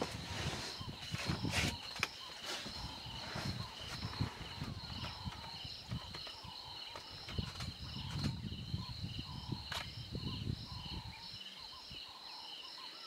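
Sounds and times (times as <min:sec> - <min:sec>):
insects calling in chorus: 0:00.0 - 0:13.0.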